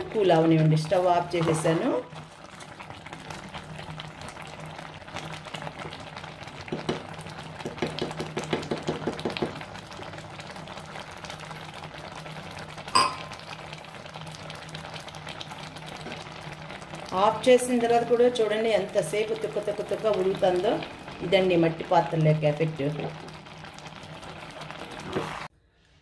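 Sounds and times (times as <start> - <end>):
thick pulp bubbling and popping: 0.0 - 25.5
wooden spatula stirring: 24.8 - 25.5.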